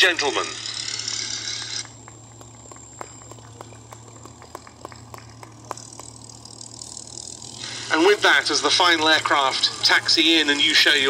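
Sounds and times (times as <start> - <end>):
steady low hum: 0.0 - 11.0
sparse hand clapping: 1.9 - 6.4.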